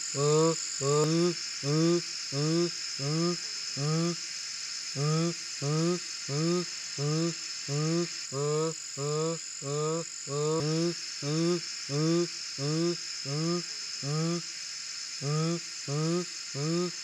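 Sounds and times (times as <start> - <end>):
high insect hiss: 0.0 - 17.0.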